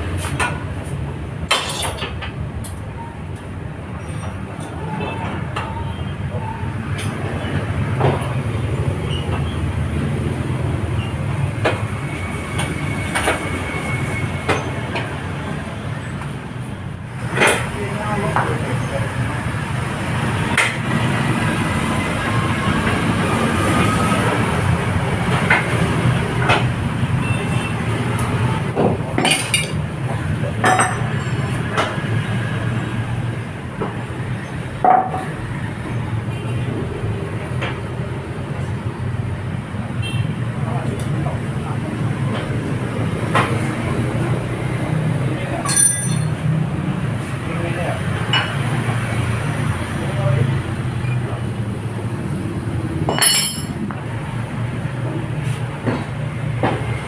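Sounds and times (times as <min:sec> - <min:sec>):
metal clinks and knocks: 0:30.6 - 0:31.2, 0:45.6 - 0:46.4, 0:53.1 - 0:53.9
metal knocks and clanks: 0:53.0 - 0:54.0.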